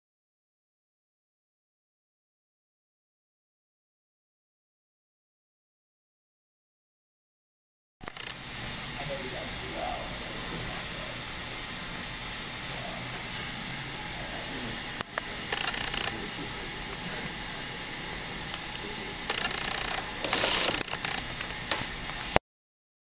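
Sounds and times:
sharp click: 8.0 - 8.4
recording hiss: 8.1 - 22.4.

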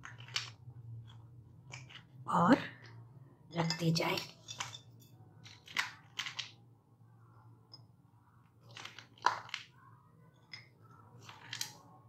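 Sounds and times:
brittle candy cracking: 5.4 - 6.6, 8.6 - 10.6, 11.2 - 12.0.

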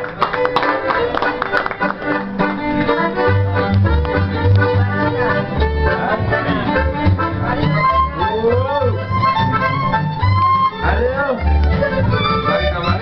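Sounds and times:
hands clapping: 0.0 - 5.0
accordion playing lively tune: 0.0 - 13.0.

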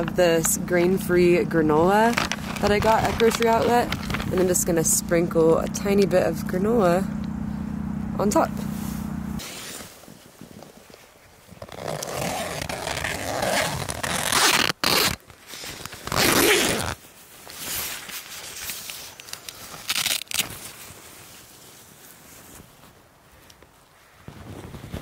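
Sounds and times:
nylon fabric rustling: 0.0 - 4.9, 8.6 - 25.0
tent zipper unzipping: 1.2 - 4.8, 8.6 - 10.0, 11.6 - 15.2, 15.8 - 17.0.

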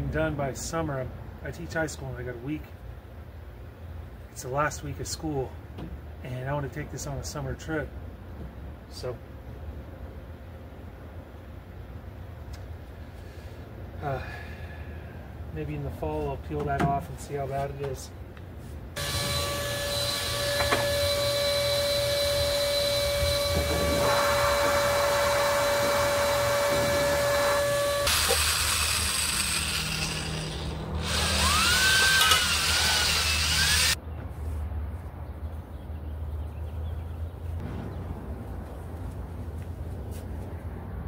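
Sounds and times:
drill mixing paint: 19.0 - 34.0
power tool whining: 19.0 - 34.0.

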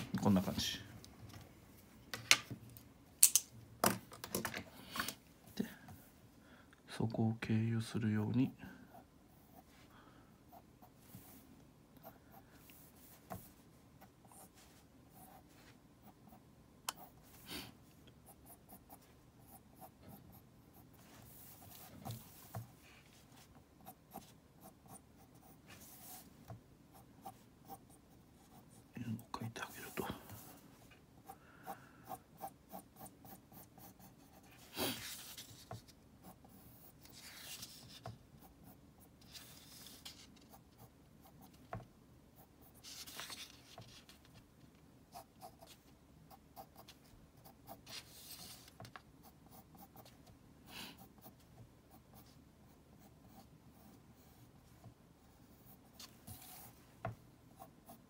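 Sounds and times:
pencil scratching on paper: 18.2 - 26.3, 31.6 - 41.6, 55.5 - 56.8.

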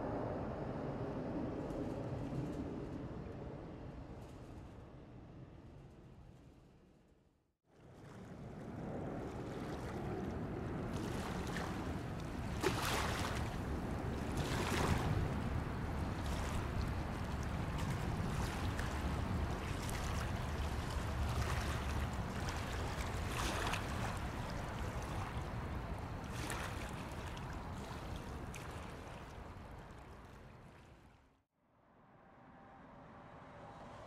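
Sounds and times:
wind gusting on microphone: 8.3 - 29.7.

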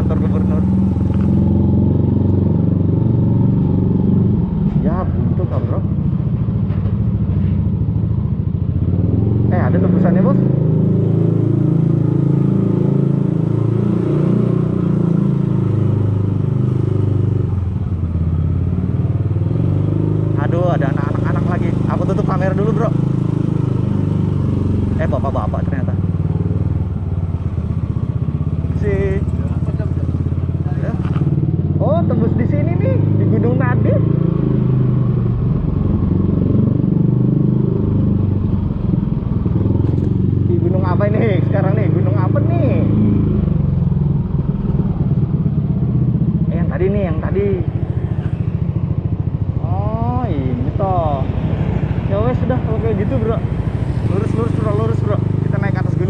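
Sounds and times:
scooter engine running: 14.4 - 33.3, 34.6 - 41.1, 42.3 - 56.0.

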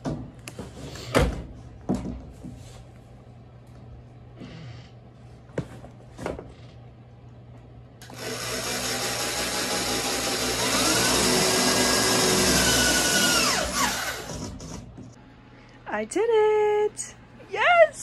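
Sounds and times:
electric drill boring into wood: 8.0 - 14.8.

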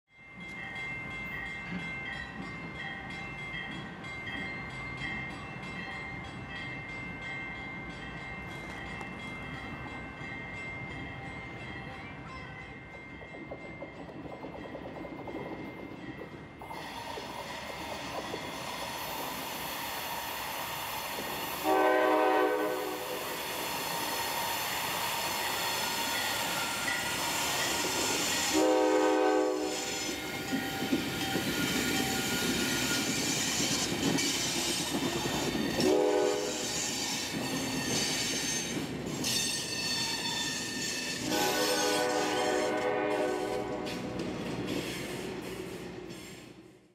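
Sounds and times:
train wheels rumbling on rails: 0.3 - 46.9
locomotive horn blasts: 21.6 - 23.2, 28.5 - 30.2, 35.8 - 36.6, 41.2 - 44.1
high wheel squeal: 35.5 - 42.0.

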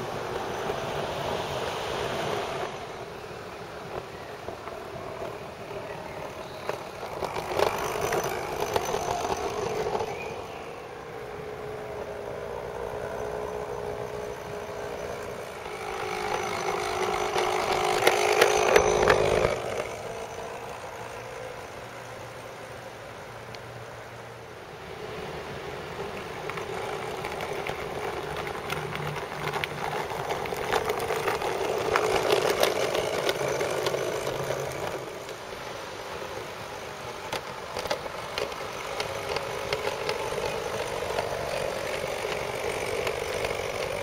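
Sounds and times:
model train motor whine: 0.0 - 44.0
wheels clicking on rails: 0.0 - 44.0.

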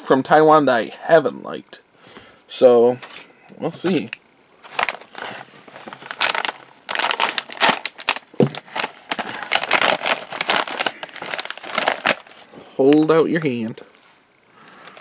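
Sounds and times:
plastic snack bag crinkling: 3.8 - 13.1.

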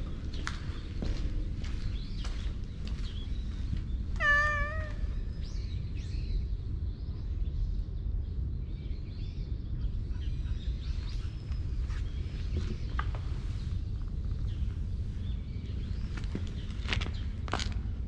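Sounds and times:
low background rumble: 0.0 - 18.0
cat meowing: 4.2 - 5.3.

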